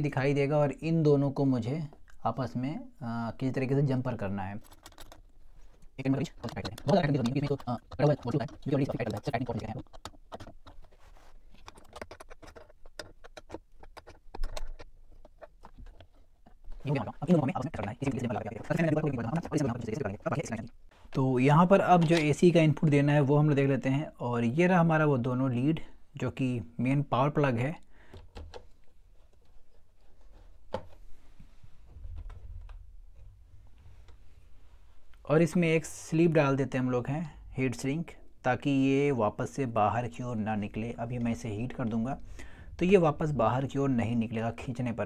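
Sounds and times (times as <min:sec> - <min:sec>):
small parts clicking in plastic casing: 0:04.6 - 0:05.3, 0:06.4 - 0:10.9, 0:11.6 - 0:16.2.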